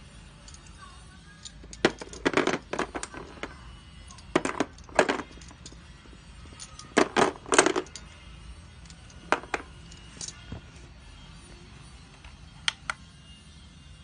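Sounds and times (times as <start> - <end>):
bangles clacking and clinking: 0.2 - 11.2.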